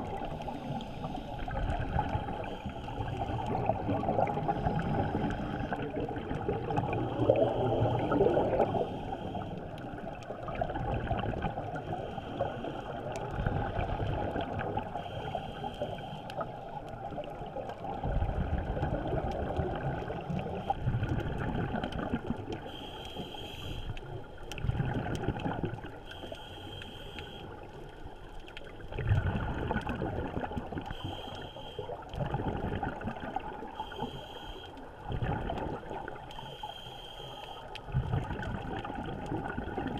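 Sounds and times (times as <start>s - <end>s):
exhaled air bubbling underwater: 0.0s - 39.9s
scuba regulator inhale hiss: 0.3s - 1.4s, 6.9s - 9.8s, 11.8s - 13.0s, 14.9s - 16.5s, 22.6s - 24.1s, 26.0s - 27.6s, 30.8s - 32.0s, 33.7s - 34.8s, 36.3s - 37.7s.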